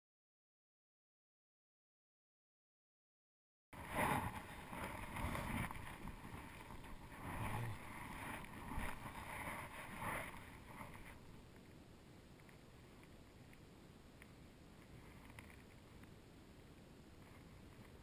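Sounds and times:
shallow water sloshing: 3.8 - 11.2.

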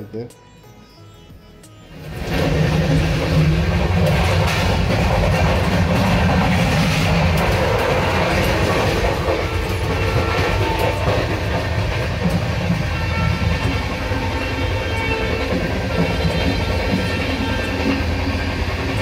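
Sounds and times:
train coach rumble: 1.9 - 19.0
wheels clacking on rails: 1.9 - 19.0.

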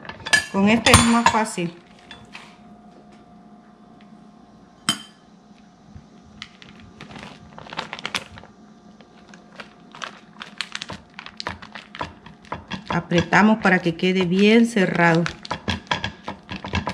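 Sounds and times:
faint steady hum: 0.0 - 16.9
dishware clinking: 0.2 - 2.3, 4.9 - 5.2
utensil knocking on counter: 12.6 - 14.6.

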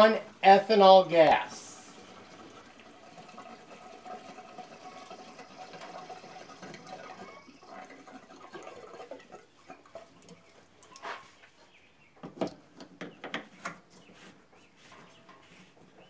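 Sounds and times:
gasoline pouring into plastic tank: 1.4 - 11.0.

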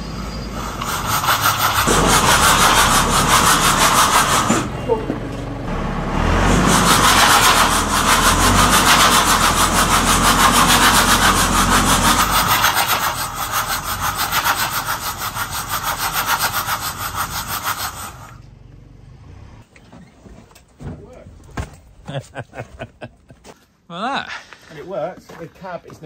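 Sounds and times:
diesel engine working under load: 0.0 - 19.7
seized engine rasping: 0.0 - 19.7.

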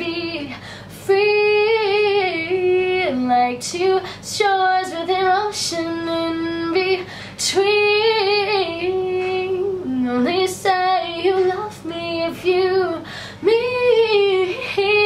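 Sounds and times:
woman singing unaccompanied: 0.0 - 15.0
woman breathing between phrases: 13.0 - 13.4.

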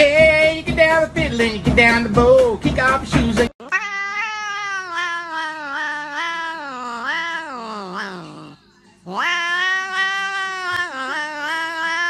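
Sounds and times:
cat yowling: 3.6 - 12.0.

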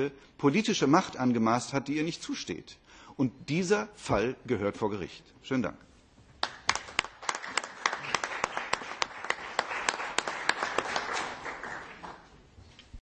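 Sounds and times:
audience applauding: 6.4 - 12.4.

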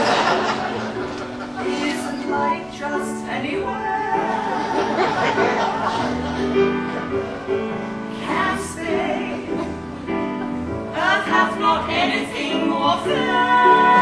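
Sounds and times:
musical accompaniment: 0.0 - 14.0
women singing in harmony: 1.6 - 6.0, 8.1 - 10.2, 10.8 - 14.0.

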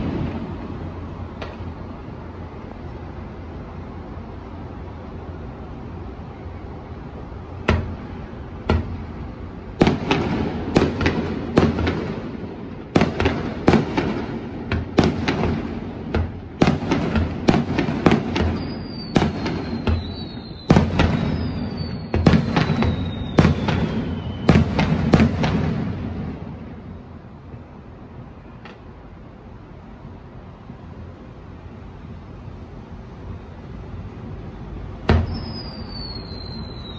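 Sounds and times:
fireworks booming: 0.0 - 2.0, 7.5 - 27.6, 35.0 - 36.9
fireworks whistling: 6.4 - 27.3, 34.4 - 36.9.

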